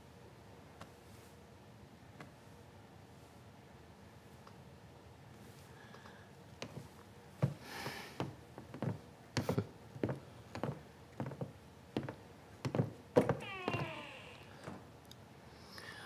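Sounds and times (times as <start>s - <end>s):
footsteps on wooden floor: 6.6s - 7.6s, 8.2s - 14.2s.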